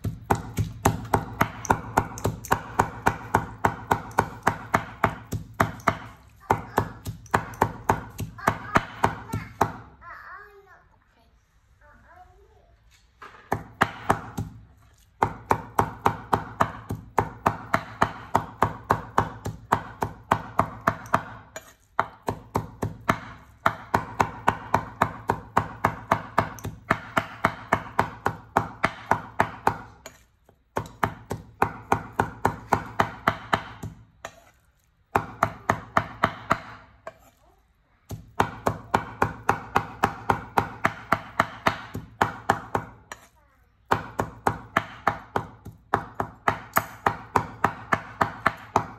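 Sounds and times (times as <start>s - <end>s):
cleaver mincing meat on board: 0.0s - 9.8s, 13.5s - 37.4s, 38.1s - 43.3s, 43.9s - 48.9s.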